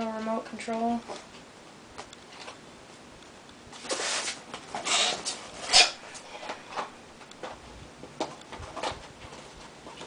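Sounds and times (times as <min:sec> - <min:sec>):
packaging rustling and scraping: 0:03.8 - 0:06.9.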